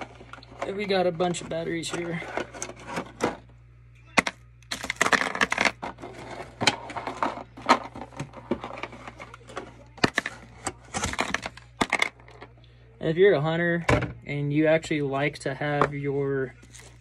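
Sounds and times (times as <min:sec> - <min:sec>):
blister pack crinkling and snapping: 0:04.6 - 0:05.6.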